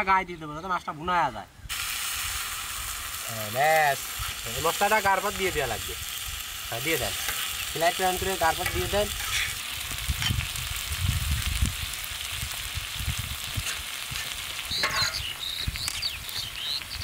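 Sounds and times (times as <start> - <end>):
fish sizzling on a griddle: 1.7 - 17.0
metal spatula scraping: 7.0 - 7.6, 8.2 - 9.6, 13.6 - 15.4.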